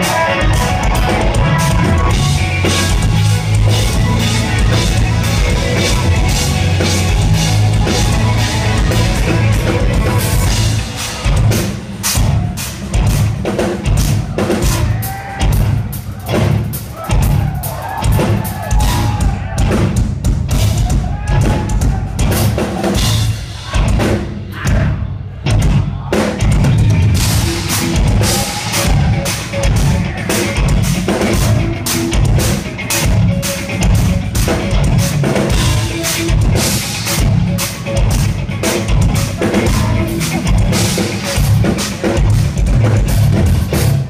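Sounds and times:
electric guitar: 0.0 - 12.1, 26.5 - 44.0
metal band playing live: 0.0 - 44.0
rapid drum kit hits: 0.0 - 44.0.

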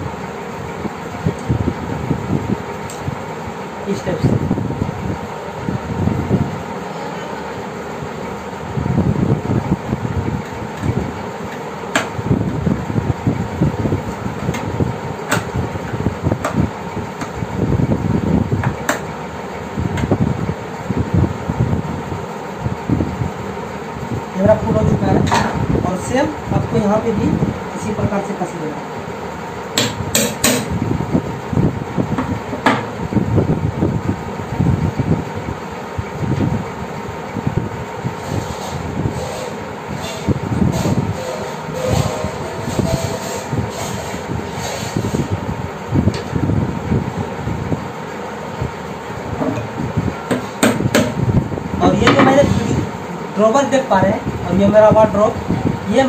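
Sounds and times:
fan-like hum: 0.0 - 56.0
hammer tapping metal punch: 29.8 - 30.8
screwdriver rubbing and grinding: 38.4 - 45.3.

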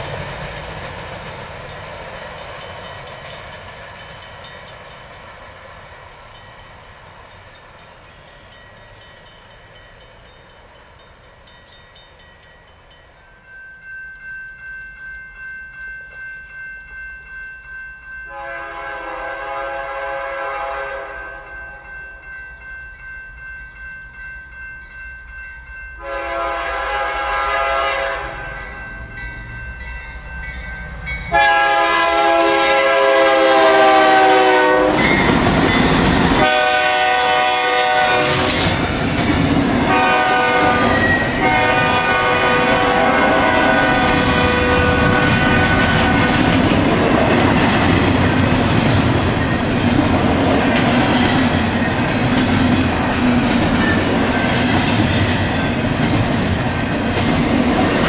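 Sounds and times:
train cars rolling clatter: 0.0 - 12.8, 33.0 - 58.0
crossing signal bell ringing: 0.0 - 20.0, 20.7 - 39.0, 39.8 - 55.9
locomotive air horn blasts: 18.3 - 21.5, 26.0 - 28.6, 31.3 - 35.1, 36.4 - 38.8, 39.9 - 46.5.

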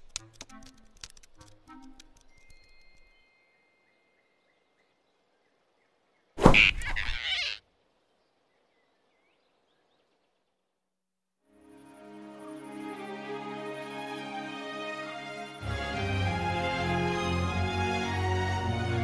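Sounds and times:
whoosh and thump: 6.4 - 6.7.

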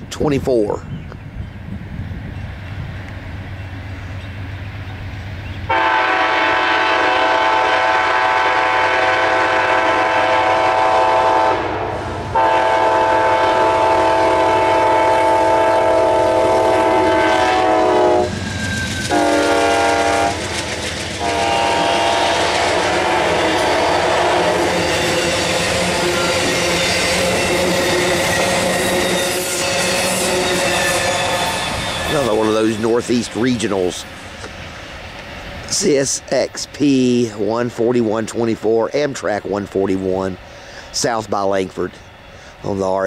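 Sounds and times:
diesel locomotive running: 0.0 - 43.0
multi-tone train air horn: 5.7 - 18.4, 19.1 - 20.4, 21.2 - 32.6
train wheels clicking over rail joints: 17.6 - 43.0.

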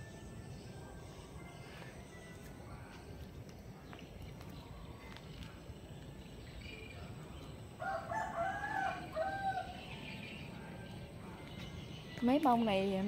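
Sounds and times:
rooster crowing: 7.8 - 10.1.

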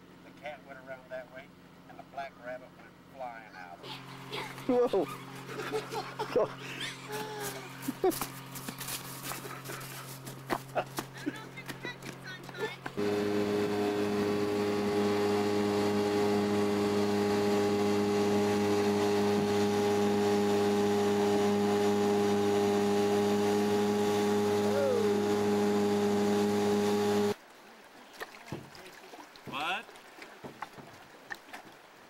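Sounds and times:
outboard motor running: 3.0 - 27.4.

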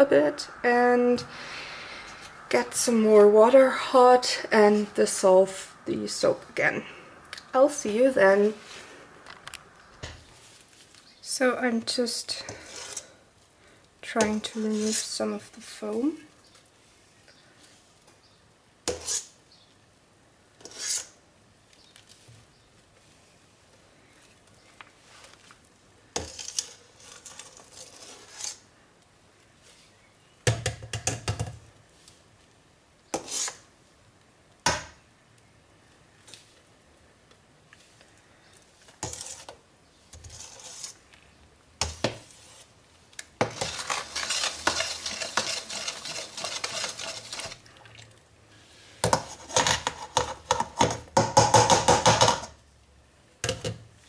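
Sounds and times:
metal ladle scraping a steel pot: 12.4 - 13.2, 18.9 - 19.3, 20.6 - 21.2, 26.2 - 28.6, 33.1 - 33.6, 39.0 - 39.5, 40.1 - 41.0, 43.4 - 47.7, 49.0 - 51.0.

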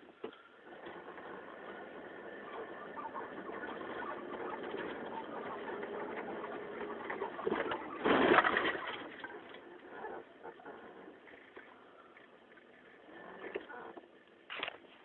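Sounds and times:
car crashing into metal: 7.5 - 9.1.

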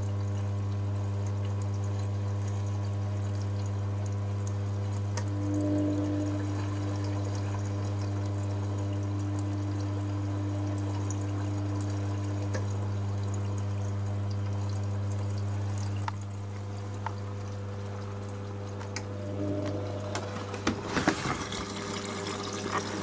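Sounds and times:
motor hum: 0.0 - 23.0
washing machine drum turning: 16.0 - 23.0.

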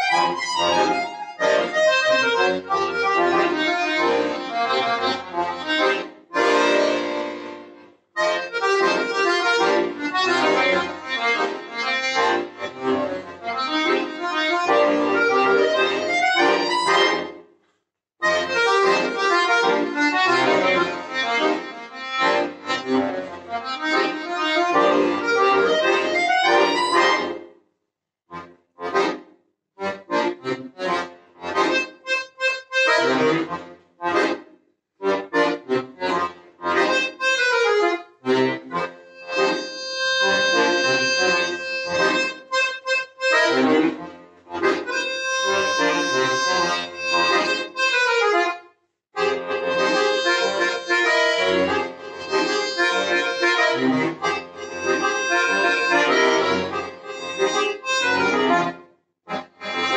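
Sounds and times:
button accordion playing: 0.0 - 17.4, 18.2 - 27.5, 28.3 - 59.9.

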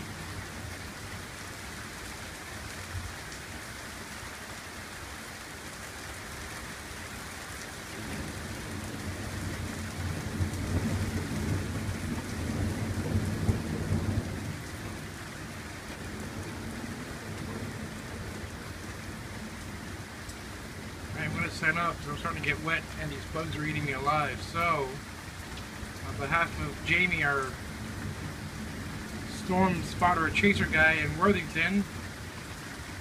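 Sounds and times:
steady rain: 0.0 - 33.0
deep thunder rumble: 8.0 - 19.3.

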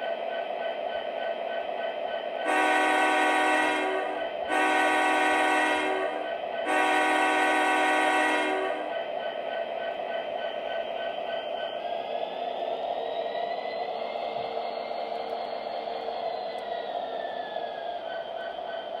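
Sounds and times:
model locomotive horn blasts: 2.4 - 8.8.

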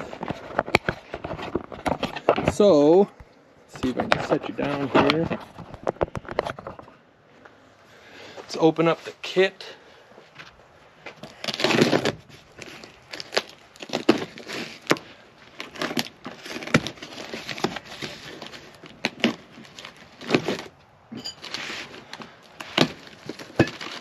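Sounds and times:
paper crinkling: 11.2 - 20.8, 21.4 - 24.0
tape and cardboard tearing: 11.2 - 24.0.

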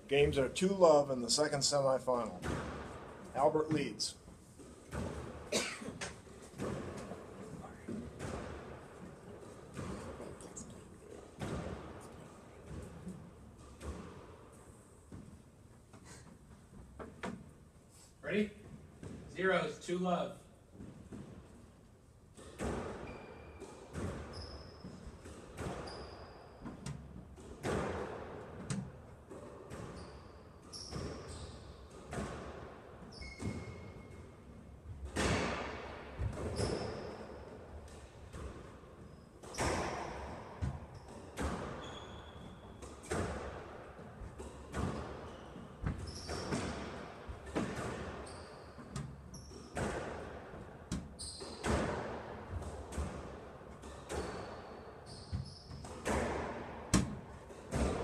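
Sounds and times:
squash ball hits echoing: 2.3 - 3.9, 6.5 - 10.2, 11.3 - 12.0, 22.3 - 34.4, 35.0 - 38.7, 39.4 - 54.8, 55.4 - 58.0
shoes squeaking on court: 22.4 - 27.7, 29.4 - 32.4, 33.0 - 34.4, 36.3 - 43.5, 44.3 - 50.0, 50.9 - 52.0, 53.8 - 56.2.

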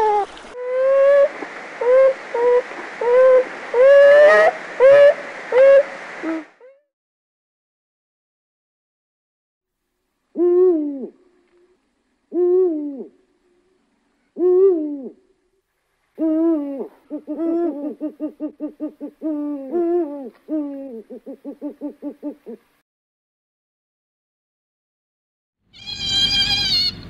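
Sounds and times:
owl hooting: 0.0 - 6.7, 10.3 - 11.2, 12.3 - 13.2, 16.2 - 22.6.

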